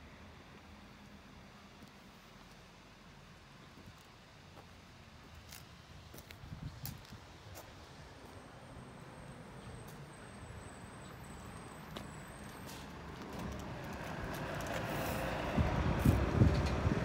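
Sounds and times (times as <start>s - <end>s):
motor vehicle approaching: 7.9s - 17.0s.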